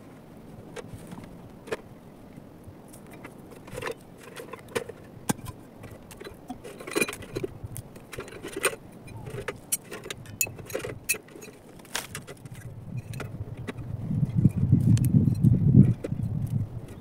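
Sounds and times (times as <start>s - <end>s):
metallic clinks of camping gear: 3.0s - 13.3s.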